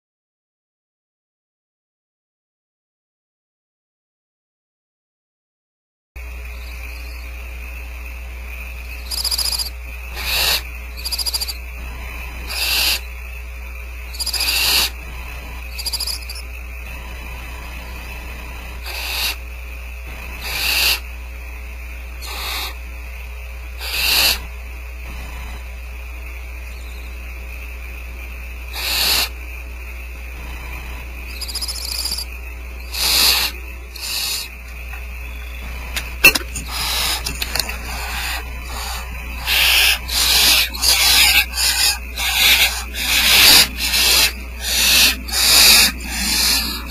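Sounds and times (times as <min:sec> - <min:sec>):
steady hum: 0:06.2 - 0:46.9
owl nestlings hissing calls: 0:09.0 - 0:13.2, 0:14.0 - 0:19.5, 0:20.2 - 0:21.1, 0:22.2 - 0:22.8, 0:23.8 - 0:24.5, 0:28.7 - 0:29.4, 0:30.4 - 0:34.6, 0:36.3 - 0:46.9.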